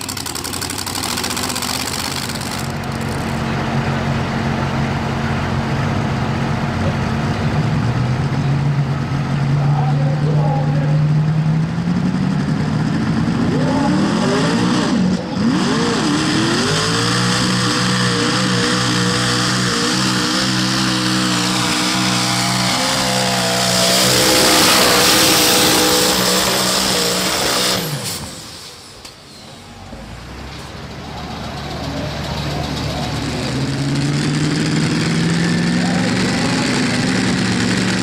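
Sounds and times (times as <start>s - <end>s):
rush of tyres and dirt: 0.0s - 10.1s, 10.7s - 38.0s
tractor engine revving: 0.0s - 38.0s.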